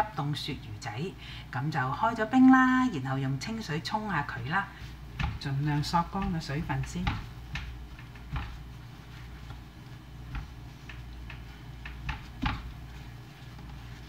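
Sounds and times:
low steady hum: 0:00.0 - 0:14.0
paper towels rustling: 0:04.3 - 0:14.0.

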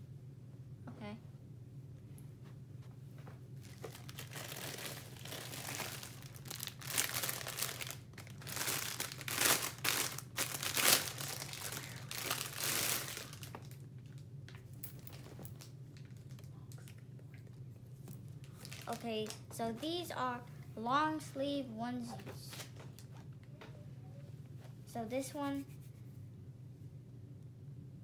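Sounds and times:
packaging crinkling and rustling: 0:03.6 - 0:14.3, 0:14.9 - 0:17.0, 0:18.4 - 0:19.5, 0:22.5 - 0:23.4.

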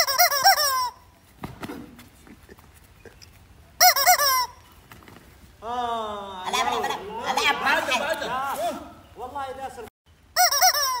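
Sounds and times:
rubber chicken toy squawking: 0:00.0 - 0:01.0, 0:03.8 - 0:04.6, 0:10.3 - 0:11.0.

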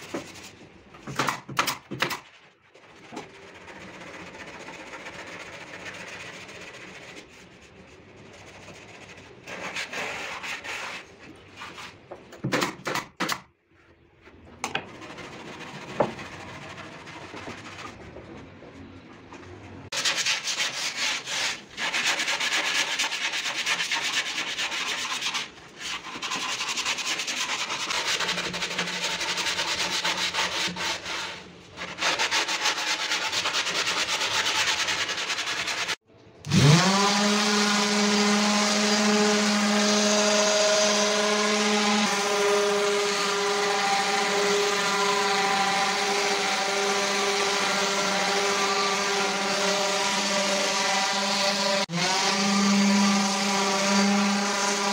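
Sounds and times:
wood being sanded: 0:03.3 - 0:11.2, 0:19.9 - 0:54.9
power tool motor running: 0:36.5 - 0:54.9.

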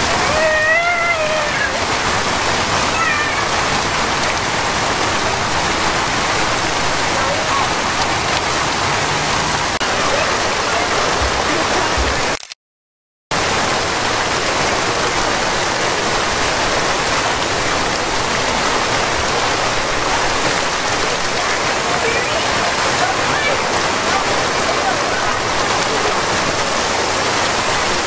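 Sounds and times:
fountain water splashing: 0:00.0 - 0:12.5, 0:13.3 - 0:28.0.

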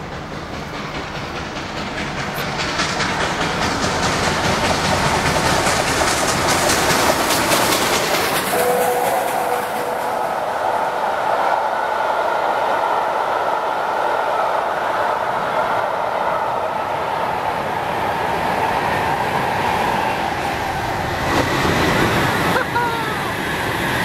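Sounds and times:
wheels clattering on rails: 0:00.0 - 0:11.4
steam train passing at speed: 0:00.0 - 0:24.0
steady tones sounding together: 0:08.5 - 0:12.4.

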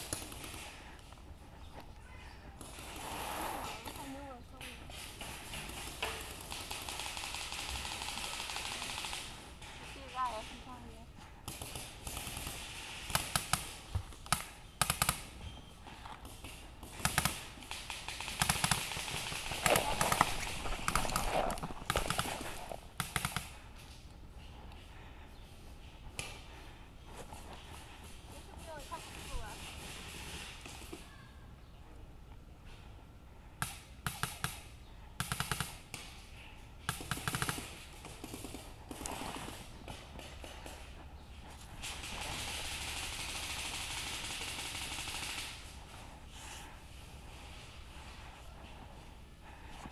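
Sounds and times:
rustle of movement: 0:00.0 - 0:33.4, 0:35.7 - 0:49.9
paintball markers firing: 0:11.5 - 0:15.4, 0:16.2 - 0:23.6, 0:33.6 - 0:36.2, 0:36.8 - 0:41.0.

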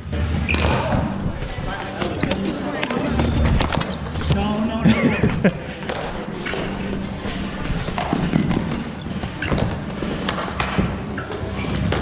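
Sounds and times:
sticks and ball clacking on floor: 0:07.6 - 0:12.0.

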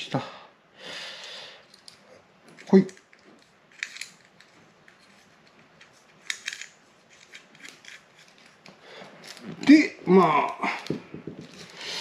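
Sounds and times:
small metal parts clicking: 0:01.6 - 0:09.4.

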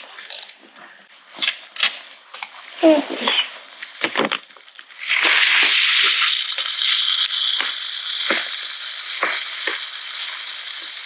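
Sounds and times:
small clicks: 0:03.8 - 0:11.0.

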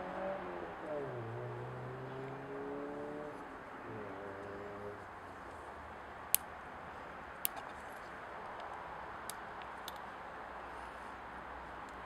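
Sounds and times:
light metallic clicks: 0:08.5 - 0:10.1.

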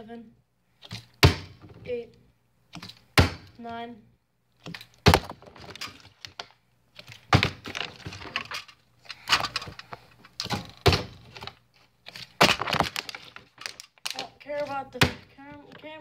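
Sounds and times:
plastic bottle thudding and clattering: 0:04.7 - 0:08.7, 0:09.3 - 0:11.5, 0:12.3 - 0:14.2.

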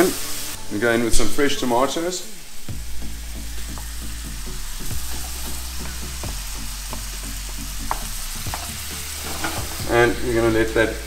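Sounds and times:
vegetables sizzling in a frying pan: 0:00.0 - 0:11.0
wooden spoon stirring: 0:06.9 - 0:09.9.

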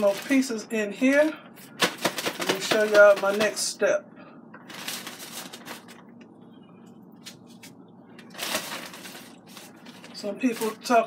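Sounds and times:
plastic bag rustling and crinkling: 0:00.0 - 0:03.7, 0:04.6 - 0:06.1, 0:07.5 - 0:11.0.

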